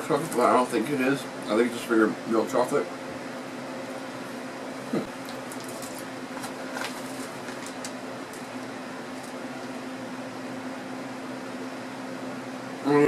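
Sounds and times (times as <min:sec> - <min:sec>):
electric fan humming: 0:00.0 - 0:13.0
plastic bag crinkling: 0:05.3 - 0:09.4.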